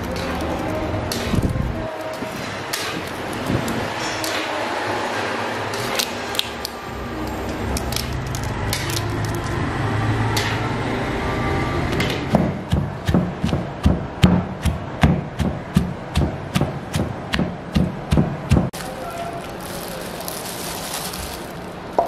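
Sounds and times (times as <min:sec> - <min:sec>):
steady background noise: 0:00.0 - 0:22.0
pestle pounding in wooden mortar: 0:12.3 - 0:18.8.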